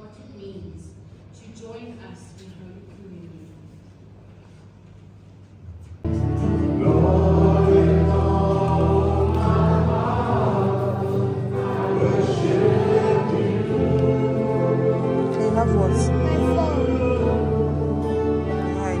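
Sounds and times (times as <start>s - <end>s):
gospel choir singing with music: 6.1s - 19.0s.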